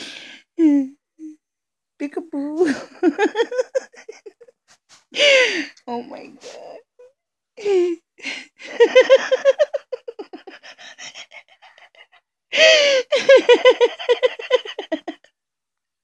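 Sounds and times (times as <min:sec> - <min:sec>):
sharp intake of breath: 0:00.0 - 0:00.4
person laughing breathily: 0:02.6 - 0:04.5, 0:07.6 - 0:15.2.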